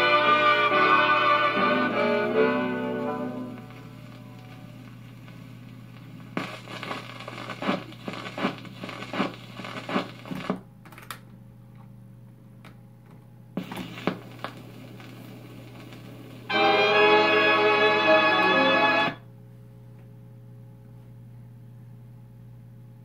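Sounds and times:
low amplifier hum: 0.0 - 23.0
record stylus crackles: 2.7 - 10.6, 13.6 - 19.2.

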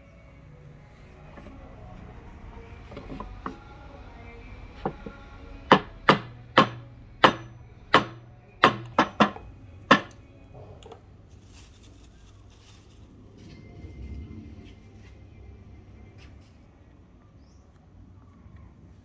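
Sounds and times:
axe knocking on hard block: 5.7 - 10.2.

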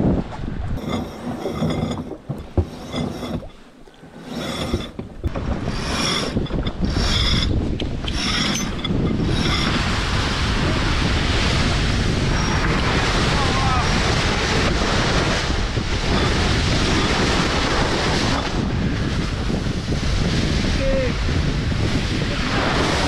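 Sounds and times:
wind and water rushing: 0.0 - 23.0
winch whirring: 0.8 - 11.1.

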